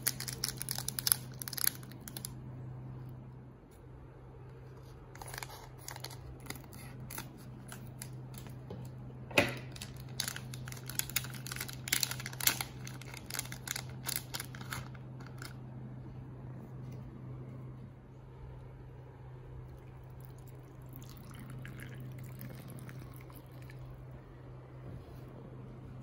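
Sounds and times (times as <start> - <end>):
plastic packaging crinkling: 0.0 - 2.4, 4.8 - 8.6, 9.6 - 15.6
steady low hum: 0.0 - 26.0
sharp packaging crack: 9.6 - 15.6.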